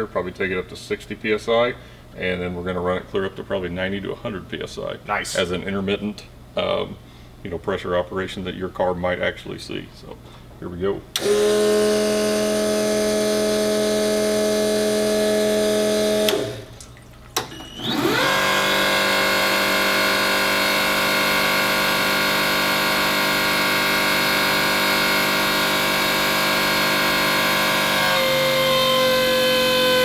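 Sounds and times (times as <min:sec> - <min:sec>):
electric fuel pump whining: 0:11.2 - 0:16.8, 0:17.4 - 0:30.0.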